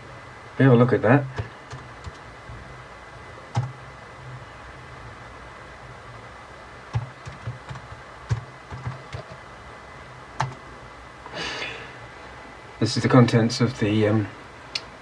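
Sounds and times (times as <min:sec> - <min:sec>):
faint low hum: 0:00.0 - 0:15.0
computer keyboard keystrokes: 0:01.4 - 0:02.2, 0:06.9 - 0:09.4, 0:10.4 - 0:10.6.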